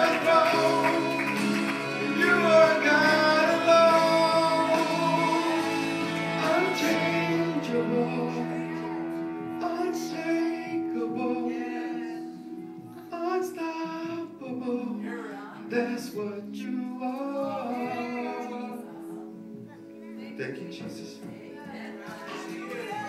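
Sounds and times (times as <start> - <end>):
sustained instrumental chords: 0.0 - 14.8
woman singing slow melody: 17.1 - 19.4.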